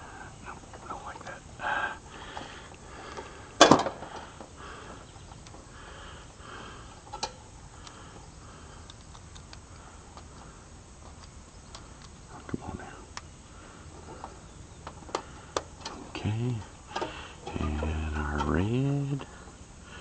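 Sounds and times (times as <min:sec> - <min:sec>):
faint ticks: 0:07.0 - 0:13.3.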